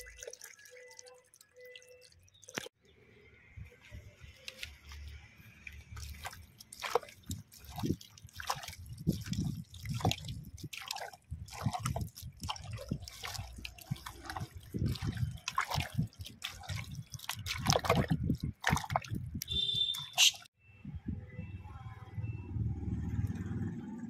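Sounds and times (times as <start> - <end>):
hand squelching raw meat: 3.9 - 20.5.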